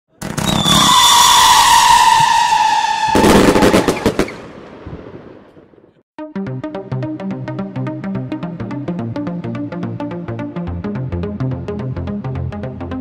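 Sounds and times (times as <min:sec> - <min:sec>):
firework cracks and bangs: 0:00.2 - 0:05.6
firework whistle falling in pitch: 0:00.4 - 0:04.1.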